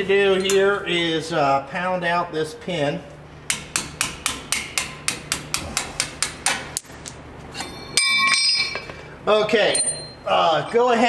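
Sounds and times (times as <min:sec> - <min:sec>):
hammer striking metal: 0:03.5 - 0:08.9
ringing metallic clink: 0:06.8 - 0:08.9, 0:09.7 - 0:10.2.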